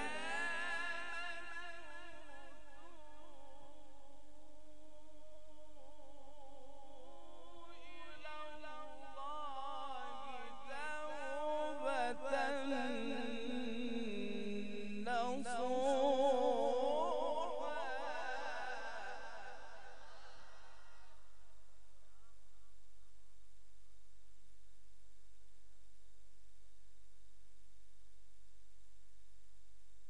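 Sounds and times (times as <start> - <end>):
man reciting melodically: 0.0 - 21.1.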